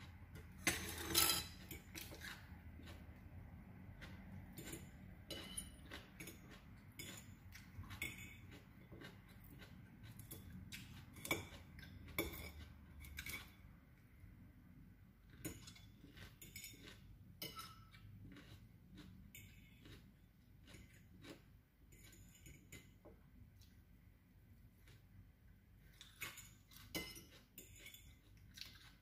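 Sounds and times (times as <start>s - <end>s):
fork clinking on ceramic bowl: 0.6s - 2.1s, 4.6s - 8.6s, 10.3s - 13.5s, 15.4s - 18.0s, 26.2s - 28.2s.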